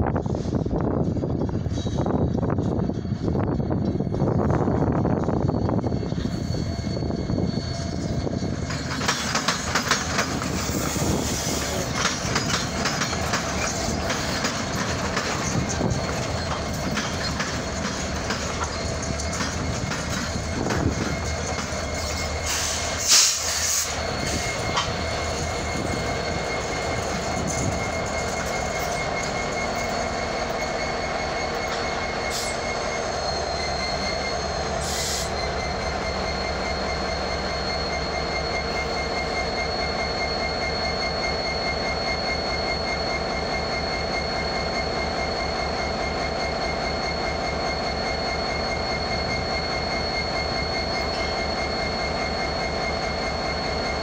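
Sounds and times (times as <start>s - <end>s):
locomotive engine rumble: 0.0s - 54.0s
wheel squeal: 1.2s - 54.0s
wheels clicking over rail joints: 8.7s - 22.6s.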